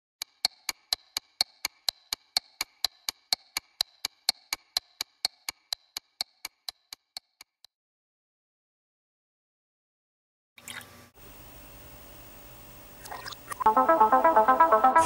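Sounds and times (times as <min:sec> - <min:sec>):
clock ticking: 0:00.2 - 0:07.7.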